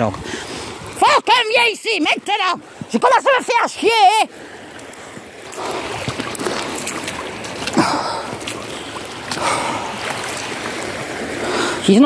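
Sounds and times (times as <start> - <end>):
river rushing over pebbles: 0.0 - 12.0.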